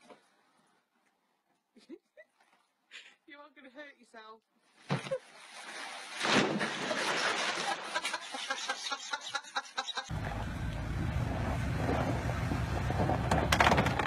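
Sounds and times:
water splashing in pool: 5.0 - 8.5
vehicle engine rumble: 10.1 - 14.0.

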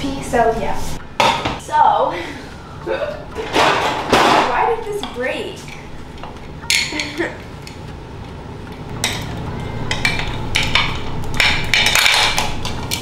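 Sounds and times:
pans and utensils clattering: 3.3 - 4.7, 6.6 - 7.8, 9.0 - 13.0.

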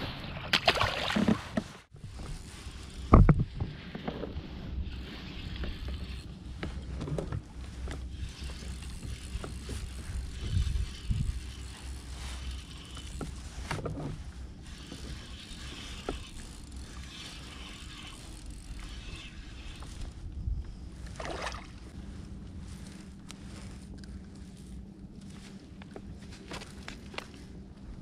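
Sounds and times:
fishing reel whirring: 2.0 - 3.3, 4.8 - 6.9, 7.8 - 21.2.

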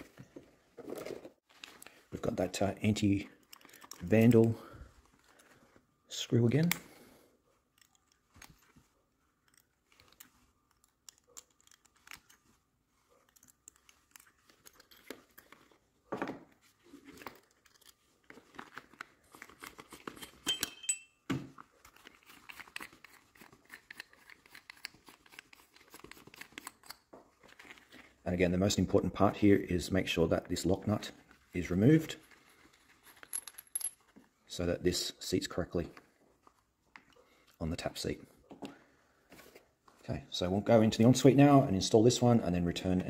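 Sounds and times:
small clicks of metal parts: 3.3 - 4.6, 7.7 - 12.6, 13.2 - 15.8, 17.2 - 21.0, 21.9 - 27.1
light metallic ring: 20.4 - 21.3.

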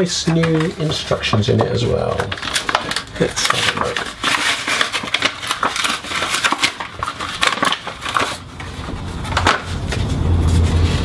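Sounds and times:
paper crinkling and rustling: 0.0 - 11.0.

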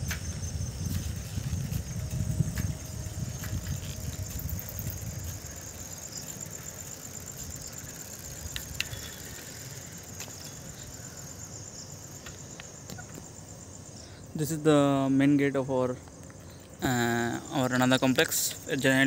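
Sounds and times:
wind rumble on microphone: 0.0 - 6.2
crickets chirping: 0.0 - 19.0.

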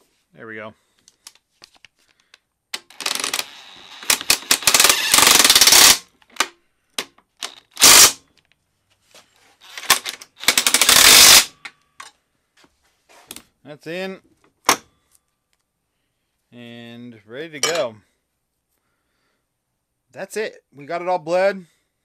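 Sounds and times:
impact wrench hammering: 4.0 - 7.1, 9.8 - 11.6.

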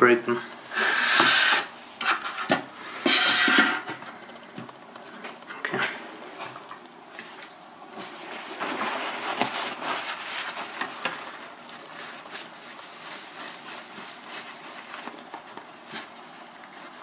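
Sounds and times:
paper towel rubbing and rustling: 5.9 - 17.0.

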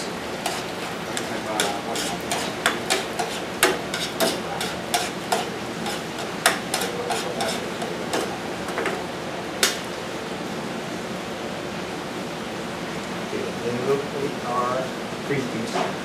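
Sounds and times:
metal spoon scraping frying pan: 0.4 - 8.4.

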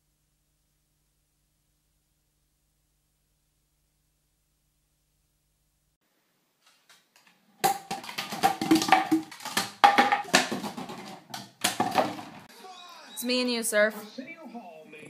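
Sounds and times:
plastic bottles clattering on wooden floor: 6.9 - 12.5.

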